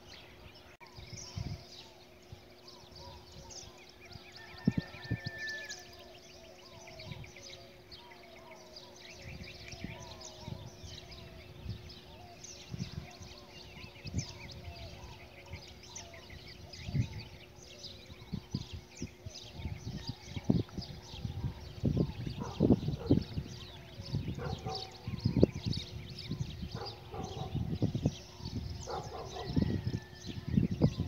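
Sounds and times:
birds chirping and calling: 0.0s - 31.0s.

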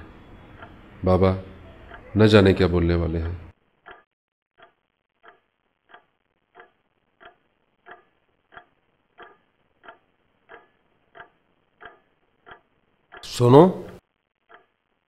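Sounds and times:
clock ticking: 0.1s - 2.2s, 2.8s - 15.0s.

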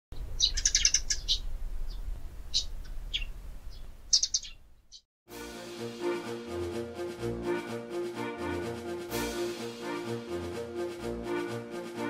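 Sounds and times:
small birds chirping: 0.2s - 5.0s
music: 5.3s - 12.0s.

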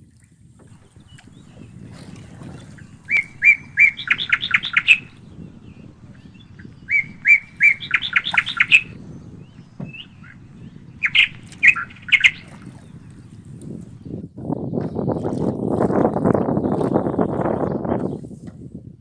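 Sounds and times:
songbird singing: 0.7s - 15.2s.

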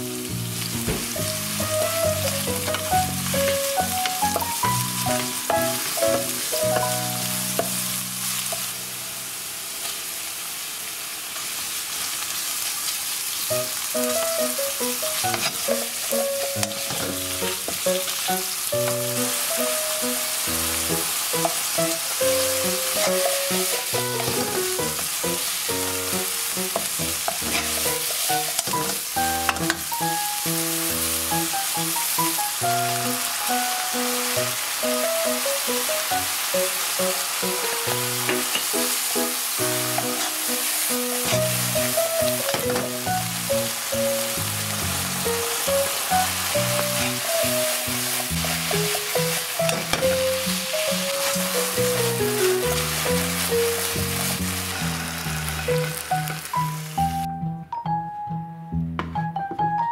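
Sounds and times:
food sizzling in hot oil: 0.0s - 57.3s
wooden spatula scraping pan: 23.0s - 25.1s, 26.7s - 29.7s.

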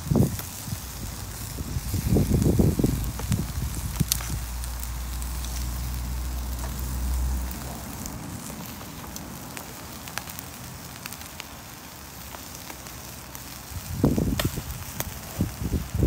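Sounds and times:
low rumble: 0.0s - 10.6s
grill fire crackling and sizzling: 0.0s - 16.0s
sharp pops: 14.1s - 15.4s.

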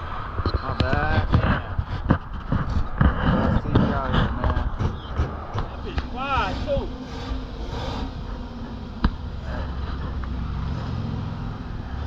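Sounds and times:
car engine idling: 3.6s - 12.0s.

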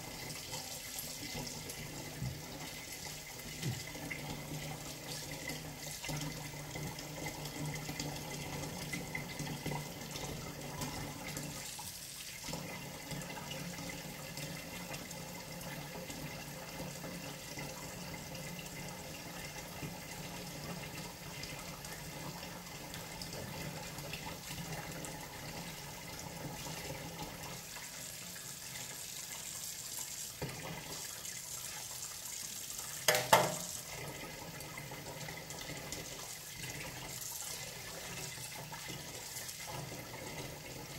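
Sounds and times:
tap running into sink: 1.3s - 4.2s, 30.4s - 31.0s, 33.0s - 34.0s.

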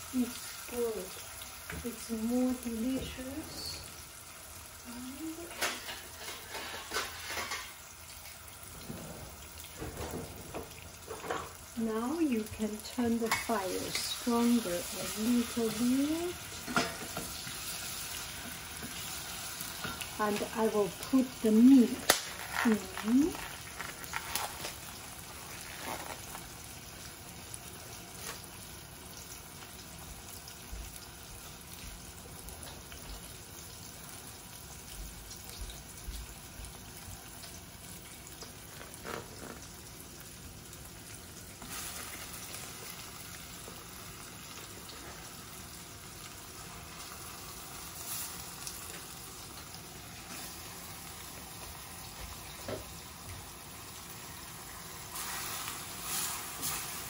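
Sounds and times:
onions sizzling in oil: 0.0s - 57.0s.

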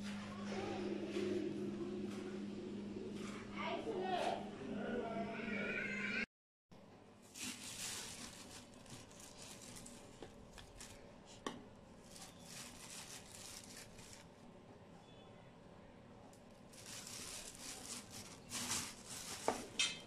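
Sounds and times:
flour scraping in plastic bowl: 7.3s - 10.8s, 17.0s - 19.8s.

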